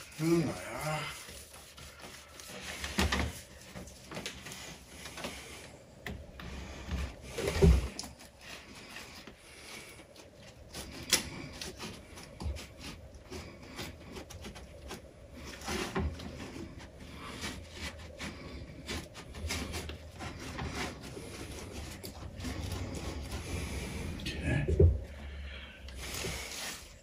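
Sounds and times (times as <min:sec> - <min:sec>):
cloth wiping on plastic: 0:00.0 - 0:05.6.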